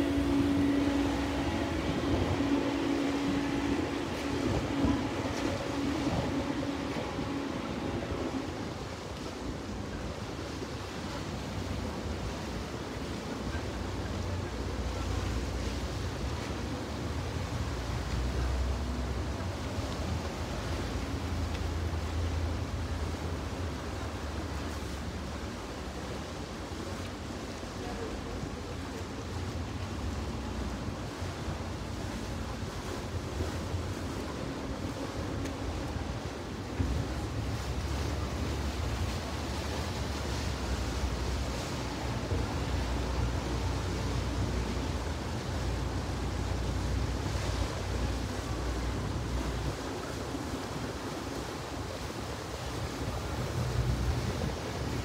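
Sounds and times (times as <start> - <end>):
wind on microphone: 0.0 - 12.4
motorboat engine rumble: 0.0 - 55.0.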